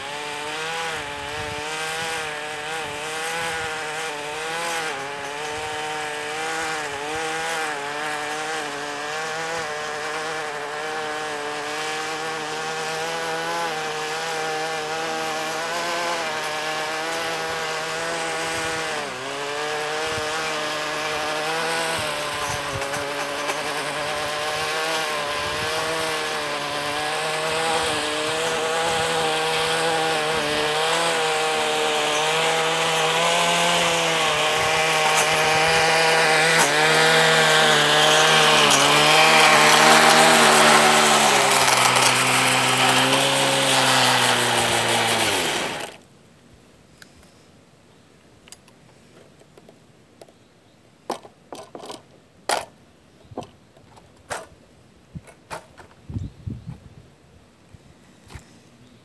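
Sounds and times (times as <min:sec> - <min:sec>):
blade cutting along concrete: 0:00.0 - 0:46.0
gas edger engine running: 0:00.0 - 0:46.0.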